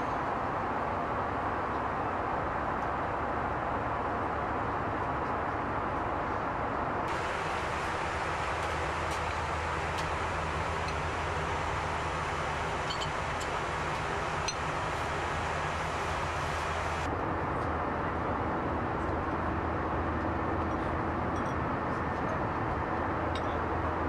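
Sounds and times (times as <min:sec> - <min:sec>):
low hum: 0:07.1 - 0:17.2.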